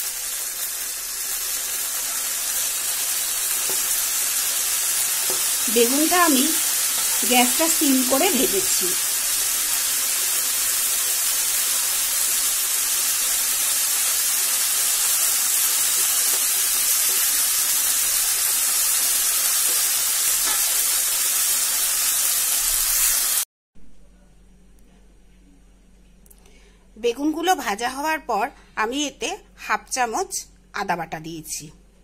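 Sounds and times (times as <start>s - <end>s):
hot oil sizzling in a wok: 0.0s - 23.5s.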